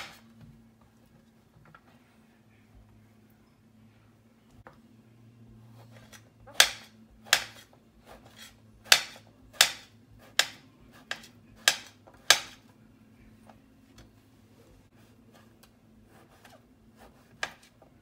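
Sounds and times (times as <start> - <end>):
knife chopping on glass board: 6.0 - 12.6, 17.1 - 17.7.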